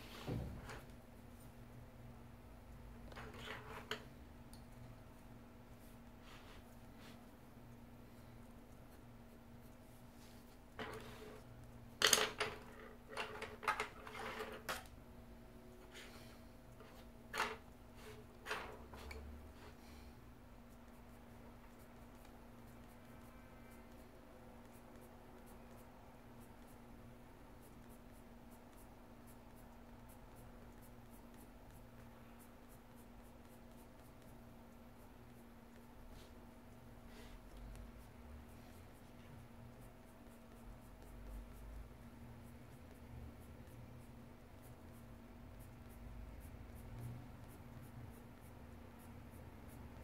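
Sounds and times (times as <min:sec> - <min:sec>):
steady low hum: 0:00.0 - 0:13.1, 0:14.8 - 0:50.0
pencil scratching on paper: 0:27.6 - 0:50.0.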